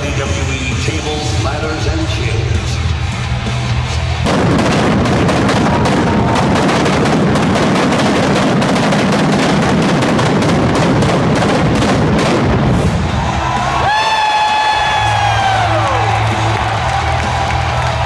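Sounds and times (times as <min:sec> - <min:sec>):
music: 0:00.0 - 0:07.6, 0:11.6 - 0:18.0
pyrotechnics crackling and banging: 0:04.2 - 0:13.3.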